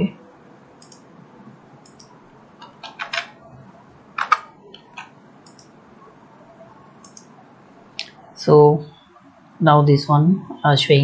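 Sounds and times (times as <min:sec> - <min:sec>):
computer keyboard typing: 0:00.8 - 0:01.1, 0:01.8 - 0:03.4, 0:04.2 - 0:05.8, 0:07.0 - 0:07.3.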